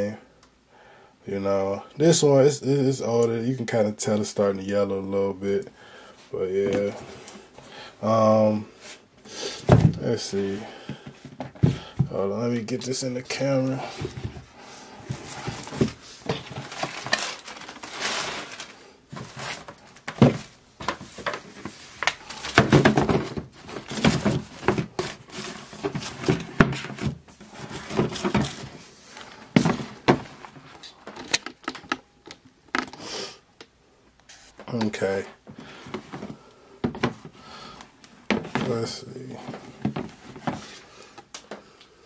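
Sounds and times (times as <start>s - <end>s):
cardboard boxes knocking and thudding: 9.6s - 10.1s, 10.8s - 12.2s, 13.7s - 18.2s, 19.1s - 28.9s, 29.5s - 30.7s, 35.5s - 37.4s, 38.2s - 40.8s
rustling: 9.6s - 31.4s.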